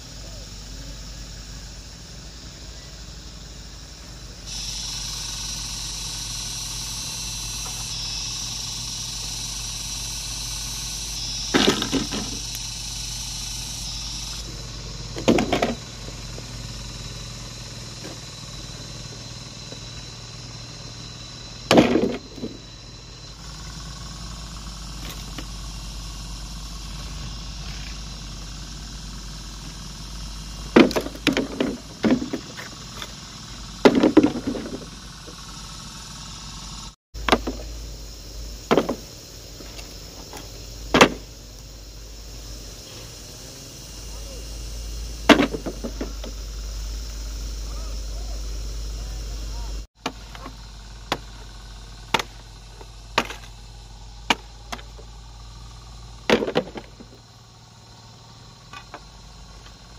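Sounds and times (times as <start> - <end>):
high hiss: 0.0 - 59.9
steady low hum: 0.0 - 59.9
hand tool chopping strikes: 52.1 - 52.4.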